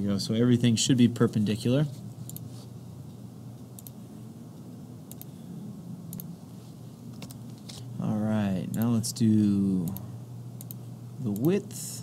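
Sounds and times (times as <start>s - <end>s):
faint steady hum: 0.0s - 12.0s
computer mouse clicking: 2.3s - 2.5s, 3.8s - 4.0s, 5.1s - 5.3s, 6.1s - 6.3s, 8.7s - 8.9s, 10.6s - 11.5s.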